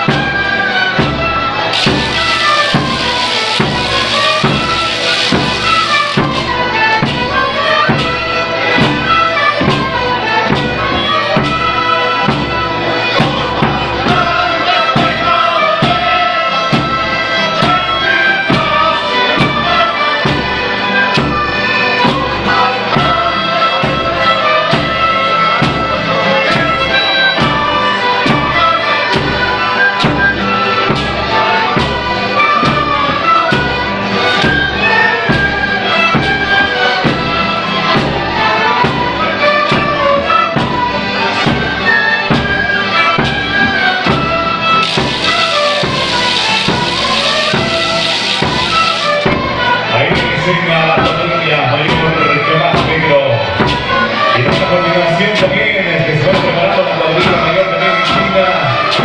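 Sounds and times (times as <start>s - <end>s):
band melody: 0.0s - 58.0s
steady drum beat: 1.0s - 12.6s, 44.0s - 50.4s.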